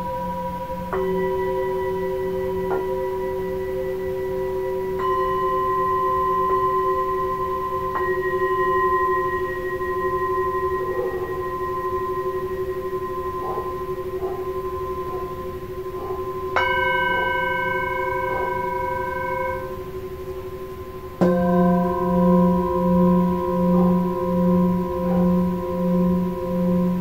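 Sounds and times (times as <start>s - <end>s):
large bowl deep wobbling hum: 0.0s - 27.0s
singing bowls ringing: 0.0s - 27.0s
bowl struck with felt mallet: 21.2s - 27.0s.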